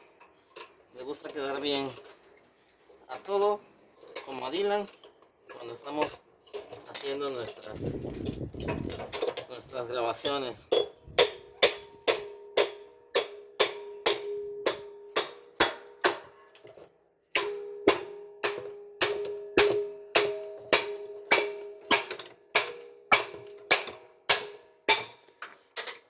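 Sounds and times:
hammer striking metal drum: 10.7s - 16.4s, 17.3s - 25.2s
metal drum ringing: 17.4s - 23.6s.

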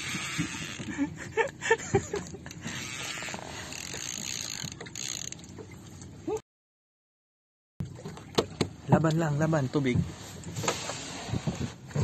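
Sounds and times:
fishing reel whirring and clicking: 0.0s - 0.9s, 2.2s - 5.5s.

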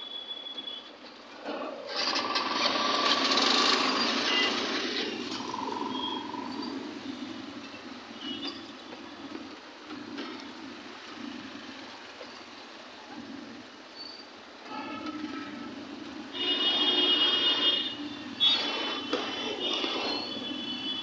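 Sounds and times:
busy street traffic: 0.0s - 21.0s
scooter engine: 1.4s - 7.6s.

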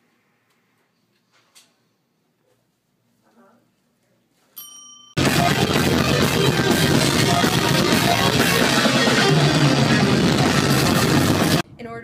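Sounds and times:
drum kit: 5.2s - 11.6s
electric guitars: 5.2s - 11.6s.

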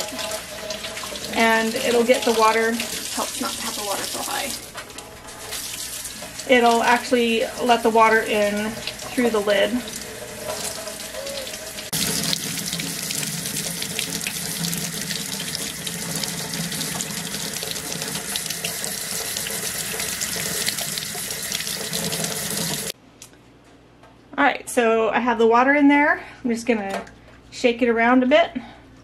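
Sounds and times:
faucet water filling glass jar: 0.0s - 23.0s
water rushing into steel sink: 0.0s - 23.0s.

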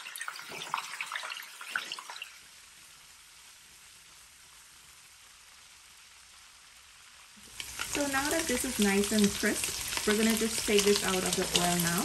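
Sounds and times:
shrimp sizzling in hot oil: 0.0s - 12.0s
spatula crackles and clicks: 7.4s - 12.0s.

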